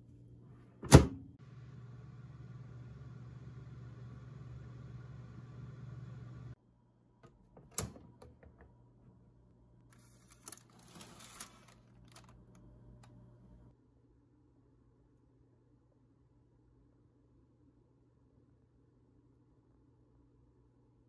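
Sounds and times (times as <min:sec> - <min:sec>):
oven fan humming: 0:00.5 - 0:06.6
paper rustling: 0:09.9 - 0:12.7.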